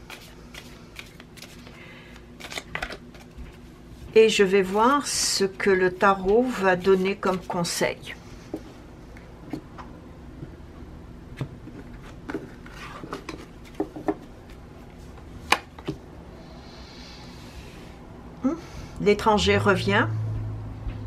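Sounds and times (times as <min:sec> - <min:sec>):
cards sliding rustle: 0:00.0 - 0:03.4.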